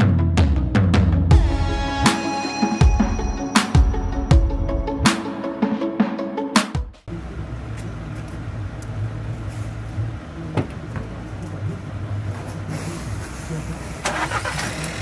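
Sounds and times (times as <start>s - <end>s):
low engine hum: 7.1s - 15.0s.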